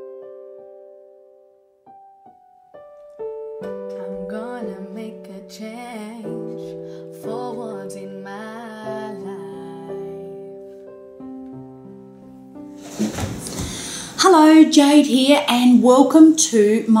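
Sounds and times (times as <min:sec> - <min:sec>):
keyboard chords: 0:00.0 - 0:17.0
piano notes ringing: 0:00.0 - 0:17.0
person singing: 0:03.9 - 0:10.6.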